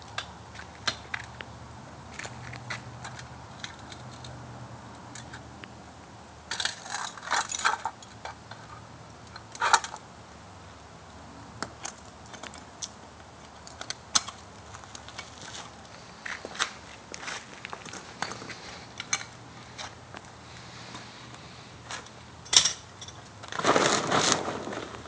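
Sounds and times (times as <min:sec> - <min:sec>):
metal pieces clinking and rattling: 0:06.5 - 0:08.7, 0:22.4 - 0:23.2.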